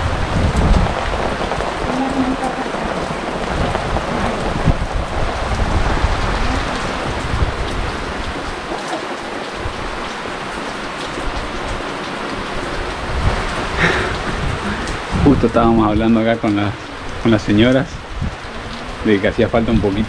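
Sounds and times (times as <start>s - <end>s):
heavy rain falling: 0.0s - 20.0s.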